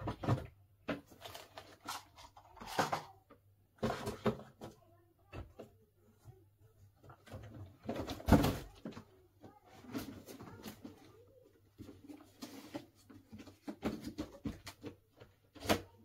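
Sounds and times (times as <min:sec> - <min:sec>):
plastic pieces clicking and rustling: 0:00.9 - 0:03.2.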